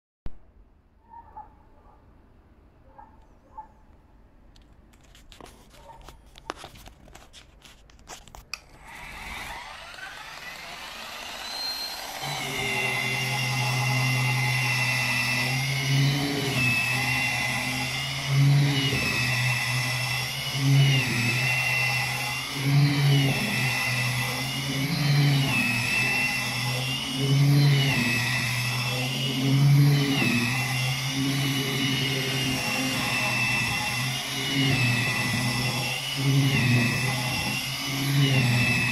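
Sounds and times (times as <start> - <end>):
electric brush motor humming: 8.6 - 38.9.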